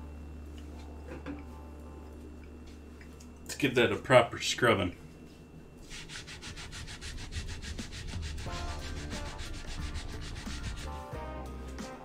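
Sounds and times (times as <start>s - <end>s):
scrubbing wooden cutting board: 5.8s - 11.1s.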